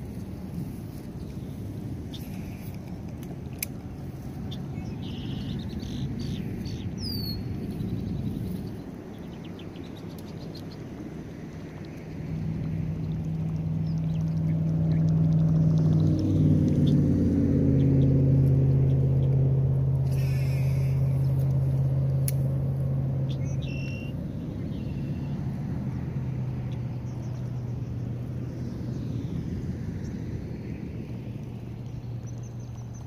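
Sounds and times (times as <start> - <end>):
motor engine humming: 0.0 - 33.0
bird chirps: 4.5 - 10.8, 23.2 - 25.4.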